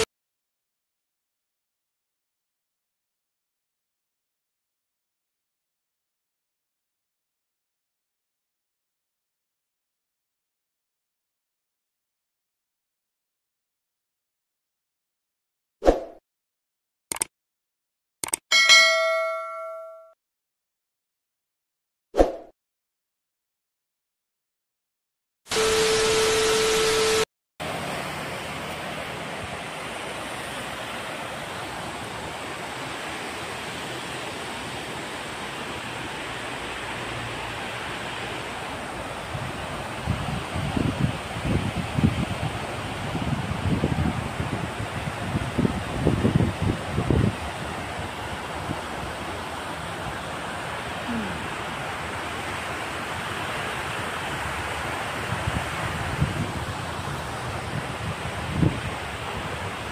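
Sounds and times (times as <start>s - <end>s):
water rushing over weir: 25.5s - 59.9s.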